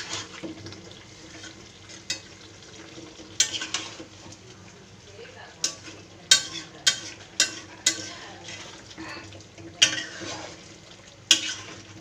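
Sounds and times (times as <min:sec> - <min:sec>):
spatula scraping metal pan: 0:00.0 - 0:00.6, 0:03.3 - 0:04.2, 0:05.6 - 0:09.2, 0:09.8 - 0:12.0
meat sizzling in oil: 0:00.0 - 0:12.0.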